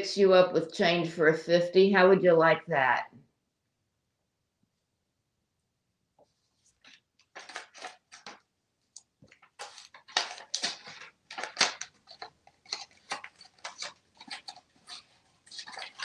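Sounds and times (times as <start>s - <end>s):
paper money crinkling: 6.5s - 8.5s, 9.2s - 16.0s.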